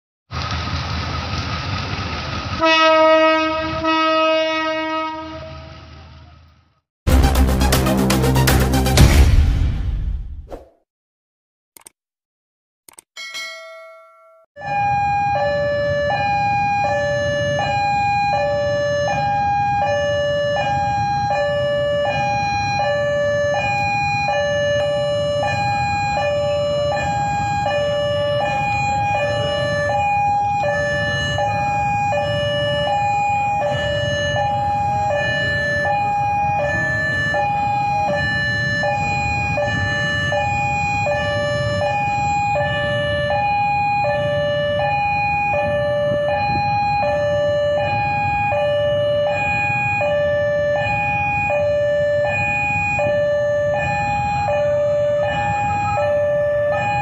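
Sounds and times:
two-tone crossing alarm: 13.2 - 57.0.

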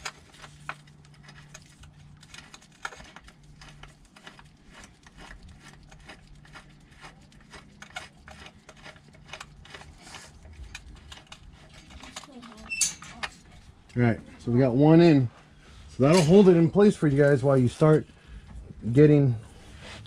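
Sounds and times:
bolt threading clicks and scrapes: 0.0 - 13.7.

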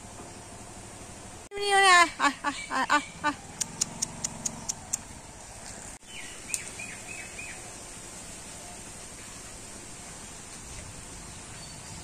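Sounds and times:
bird high clicks: 3.6 - 5.1.

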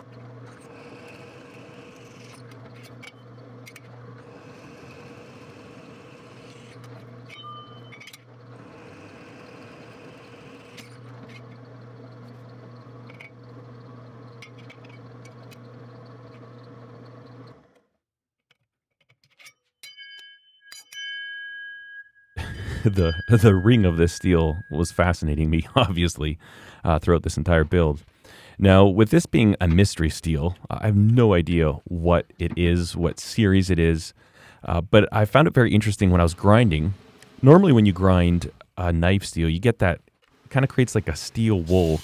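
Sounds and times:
drill press motor running: 0.0 - 17.9, 36.9 - 37.4
steel blank ringing: 7.3 - 8.2, 19.8 - 25.6.

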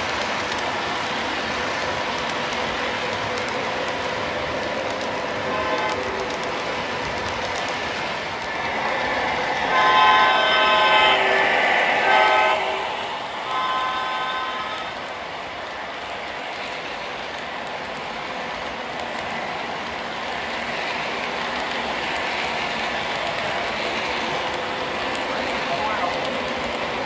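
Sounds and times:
model train rolling on track: 0.0 - 27.0
model locomotive horn blasts: 5.5 - 6.2, 8.7 - 15.0.

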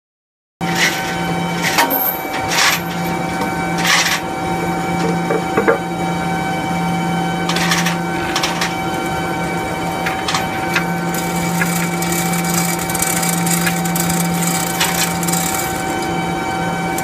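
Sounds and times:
steady mechanical hum: 0.6 - 17.0
hoist chain clinking: 1.7 - 3.2, 7.5 - 8.8, 10.0 - 16.1.

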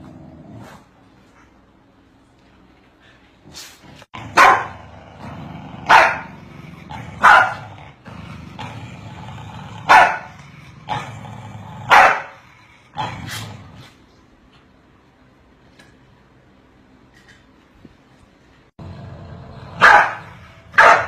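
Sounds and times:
dogs barking: 4.3 - 4.8, 5.8 - 6.3, 7.2 - 7.7, 9.9 - 10.3, 11.9 - 12.4, 19.8 - 21.0.

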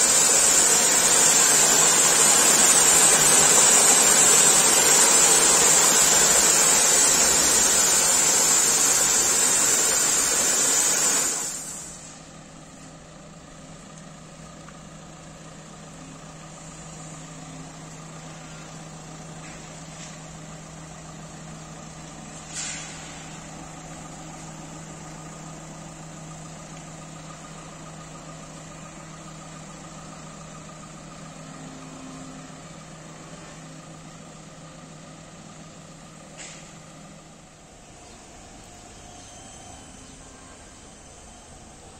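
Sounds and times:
spray jets hissing: 0.0 - 12.0.

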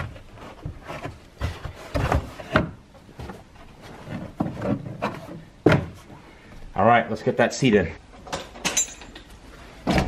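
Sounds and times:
handling knocks and scuffs: 0.0 - 6.2.

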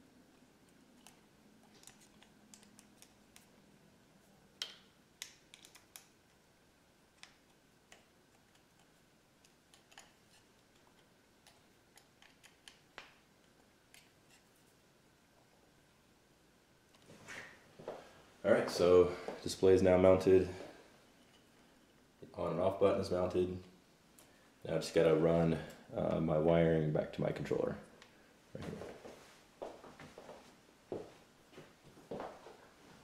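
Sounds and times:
small clicks and taps: 4.6 - 6.1.

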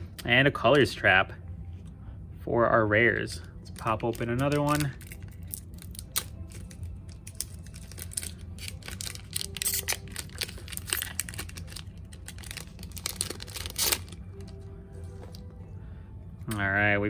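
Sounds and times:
foil wrapper tearing and crinkling: 3.8 - 14.6.

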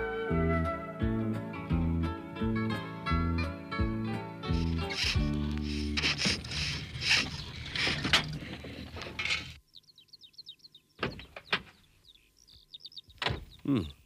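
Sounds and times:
birds chirping: 6.6 - 8.6, 9.2 - 14.0
door clunking: 13.1 - 13.6.

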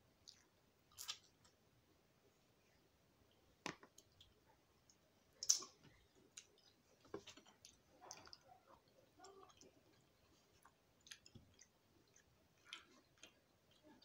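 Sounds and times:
close-up chewing: 4.0 - 14.0.

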